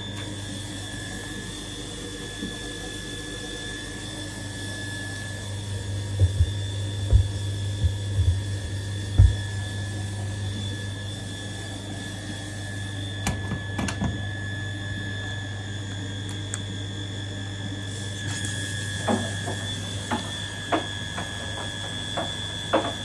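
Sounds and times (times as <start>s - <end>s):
low hum: 4.0s - 14.2s
washing machine clicking: 6.2s - 9.5s, 13.2s - 14.2s.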